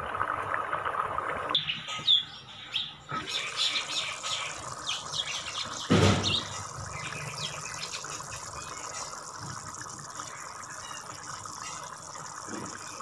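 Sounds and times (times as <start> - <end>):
lentils bubbling in a pot: 0.0 - 1.9, 3.1 - 13.0
loud thump: 5.9 - 6.4.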